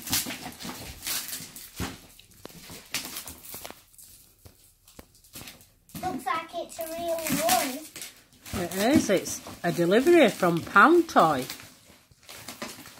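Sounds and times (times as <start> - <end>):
packing tape pulled off: 0.0 - 5.7.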